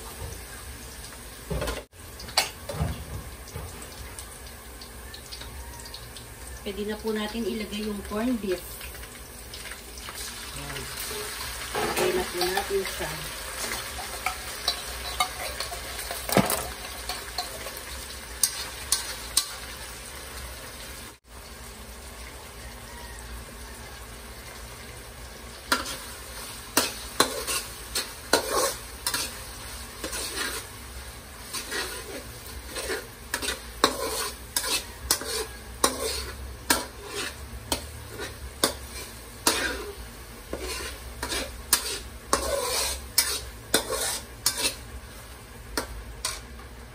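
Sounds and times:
meat sizzling in oil: 0.0 - 46.9
metal utensil scraping a wok: 11.0 - 19.8, 25.7 - 46.6.

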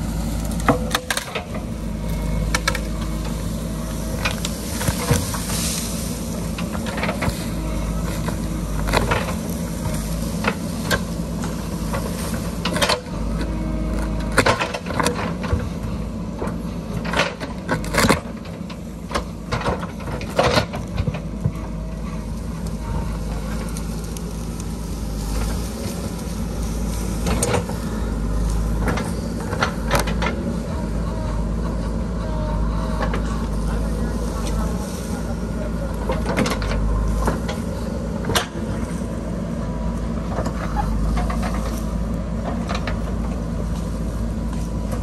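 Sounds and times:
diesel engine under load: 0.0 - 45.0.

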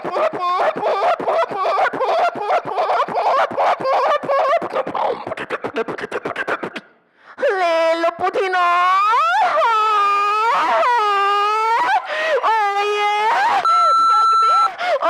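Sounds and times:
person beatboxing: 2.4 - 7.0.

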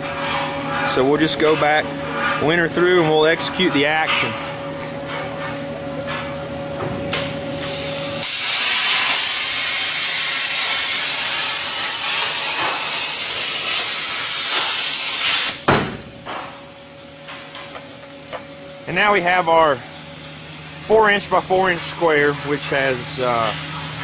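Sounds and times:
plasma torch hissing: 7.2 - 15.7, 20.5 - 24.0.

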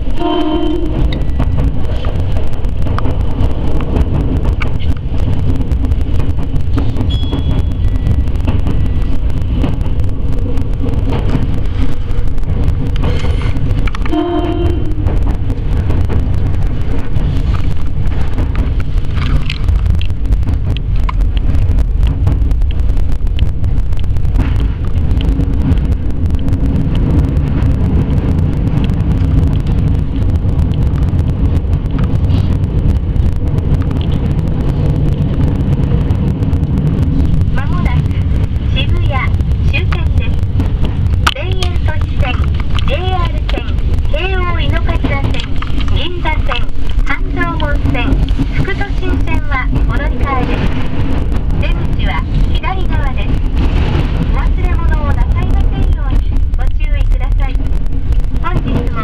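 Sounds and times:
train wheels and motors rumbling: 0.0 - 59.0.

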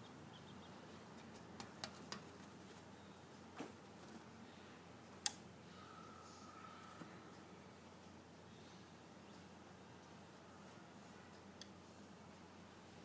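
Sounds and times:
sharp ticks and taps: 1.2 - 2.3.

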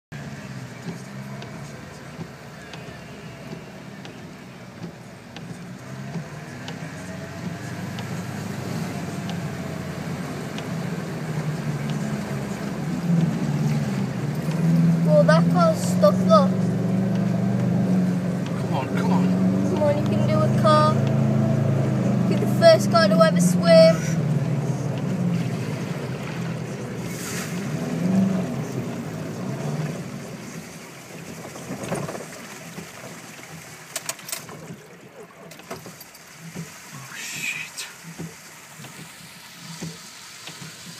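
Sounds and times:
car engine running: 0.1 - 40.9
water rushing against car: 0.2 - 40.9.

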